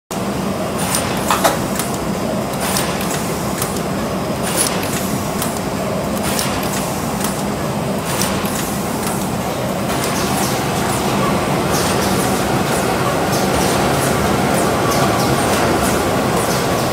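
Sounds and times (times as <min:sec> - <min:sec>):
sharp machine clicks: 0:04.4 - 0:10.6.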